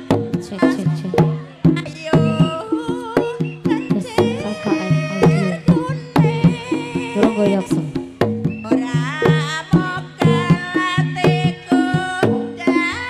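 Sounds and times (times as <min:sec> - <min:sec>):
high wavering melody: 0:00.0 - 0:08.0
hand drums beating: 0:00.0 - 0:13.0.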